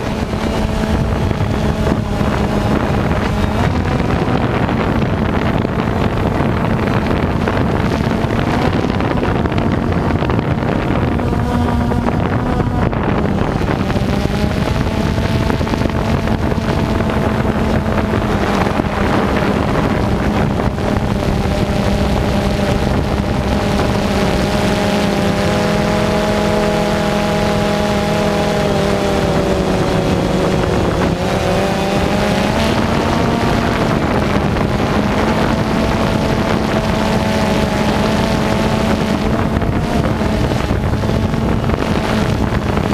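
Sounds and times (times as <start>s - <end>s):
drone motors humming: 0.0s - 42.9s.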